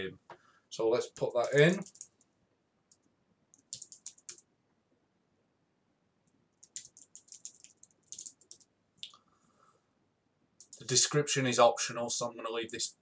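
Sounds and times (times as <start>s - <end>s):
typing on computer keyboard: 1.3s - 2.2s, 2.9s - 4.5s, 6.6s - 8.7s, 10.6s - 10.9s.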